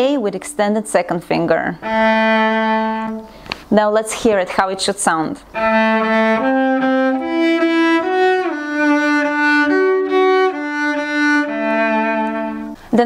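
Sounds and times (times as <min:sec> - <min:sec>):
bowed cello: 0:01.7 - 0:03.3, 0:05.5 - 0:12.8.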